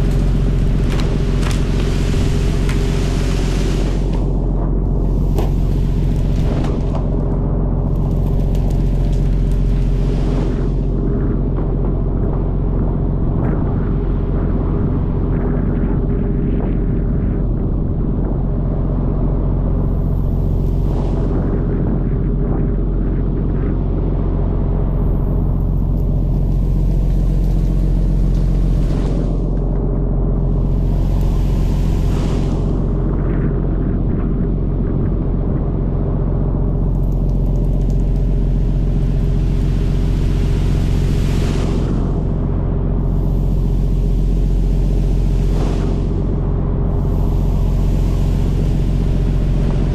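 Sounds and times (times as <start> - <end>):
water rushing along hull: 0.0 - 12.0, 37.9 - 49.9
boat engine running: 0.0 - 12.9, 24.4 - 34.0, 36.3 - 49.9.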